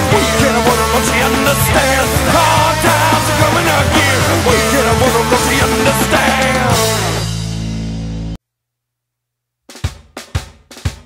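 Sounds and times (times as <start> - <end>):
loud rock music: 0.0 - 8.4.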